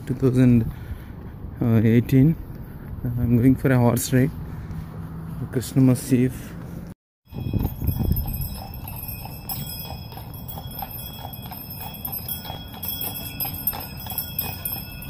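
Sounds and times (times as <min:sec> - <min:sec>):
horse hooves clip-clopping: 0:06.6 - 0:15.0.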